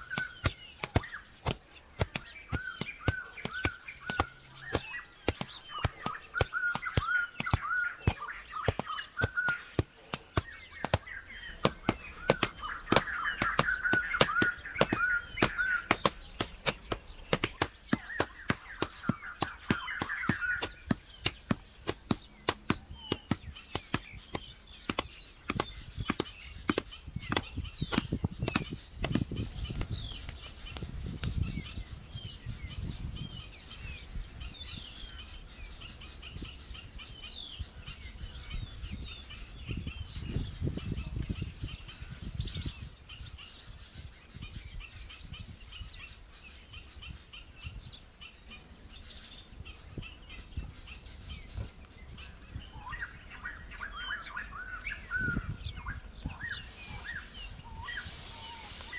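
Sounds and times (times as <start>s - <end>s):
hoe chopping dry earth: 0.0s - 29.9s
birds chirping: 0.0s - 58.9s.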